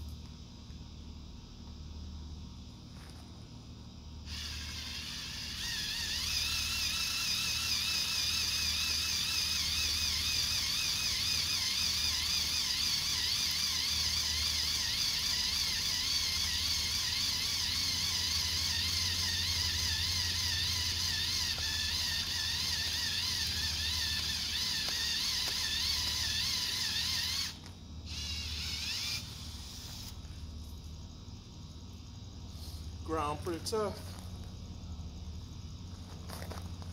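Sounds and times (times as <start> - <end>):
cordless drill motor whine: 4.2 - 30.4.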